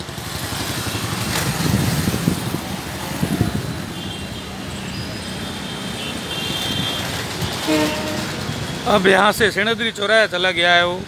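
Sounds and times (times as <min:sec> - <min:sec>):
town traffic: 0:00.0 - 0:11.0
wind buffeting microphone: 0:01.1 - 0:03.9.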